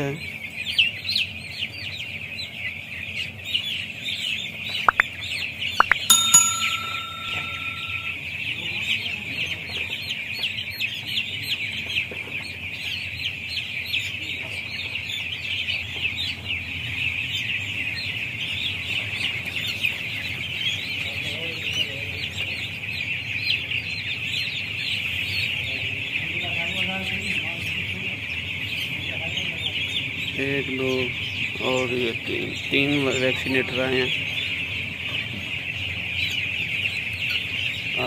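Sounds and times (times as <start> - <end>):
chicks peeping: 0.0 - 38.0
sharp clicks: 5.8 - 7.0
short ringing tone: 5.8 - 8.2.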